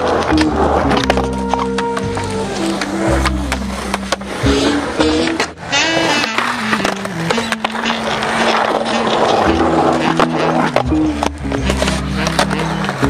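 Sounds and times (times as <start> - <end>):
skateboard clacks: 0.0 - 13.0
skateboard wheels rolling on concrete: 0.0 - 13.0
song with bass line: 0.0 - 13.0.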